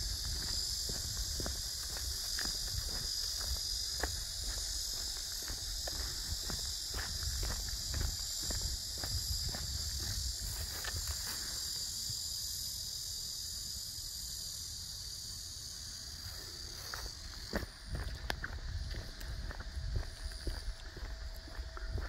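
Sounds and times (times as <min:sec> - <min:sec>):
footsteps: 0:00.0 - 0:11.6, 0:16.8 - 0:22.0
insects chirring: 0:00.0 - 0:22.0.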